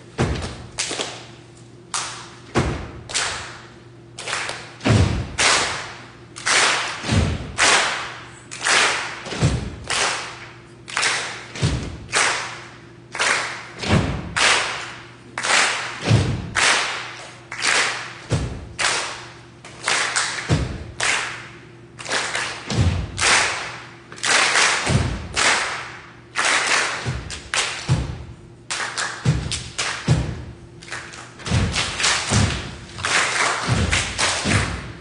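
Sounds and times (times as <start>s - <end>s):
deep drum thumps: 0.2s - 0.6s, 4.8s - 5.4s, 7.0s - 7.6s, 9.3s - 9.9s, 11.6s - 12.1s, 13.8s - 14.4s, 16.0s - 16.6s, 18.3s - 18.8s, 20.5s - 21.0s, 22.7s - 23.2s, 24.9s - 25.3s, 27.0s - 28.4s, 29.2s - 30.6s, 31.4s - 32.9s, 33.7s - 35.0s.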